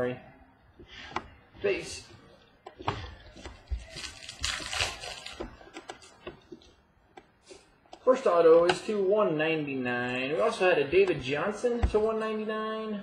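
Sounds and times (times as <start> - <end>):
trading cards clicking and rustling: 2.6 - 7.3.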